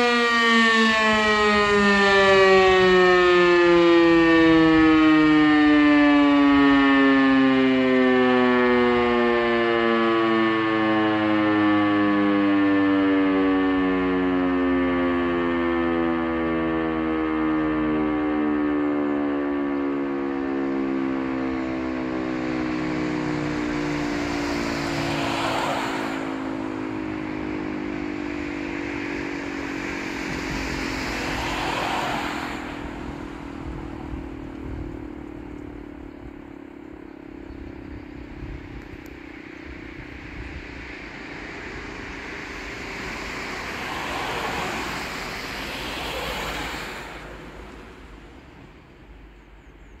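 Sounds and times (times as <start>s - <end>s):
siren winding down: 0.0s - 49.1s
rushing noise: 21.8s - 35.0s, 38.5s - 49.0s.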